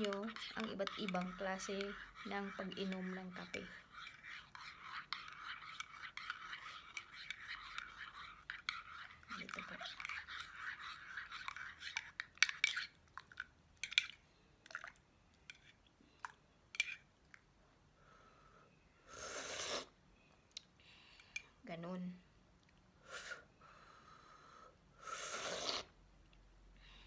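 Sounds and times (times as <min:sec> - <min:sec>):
spoon stirring in a ceramic mug: 0:00.0 - 0:17.0.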